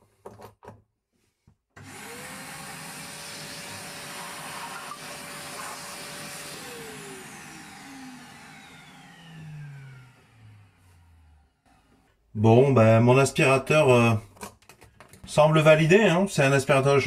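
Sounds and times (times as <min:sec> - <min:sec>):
vacuum motor whining: 0:01.8 - 0:12.2.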